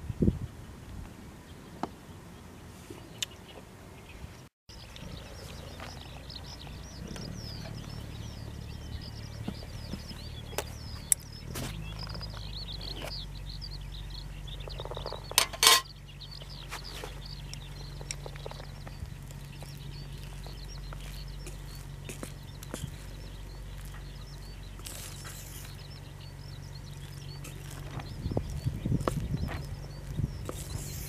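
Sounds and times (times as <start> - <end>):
birds chirping: 0.0 - 31.0
ringing metallic clatter: 15.3 - 15.9.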